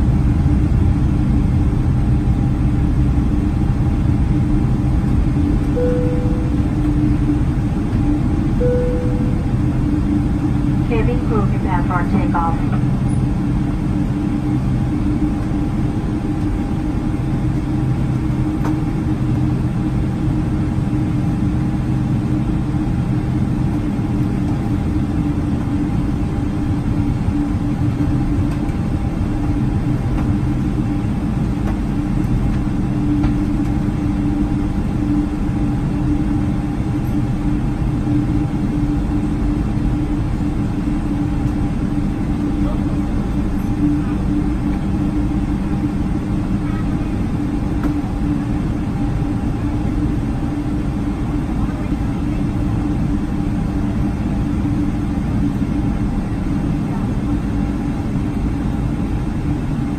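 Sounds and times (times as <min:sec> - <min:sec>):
jet engines humming in cabin: 0:00.0 - 0:59.9.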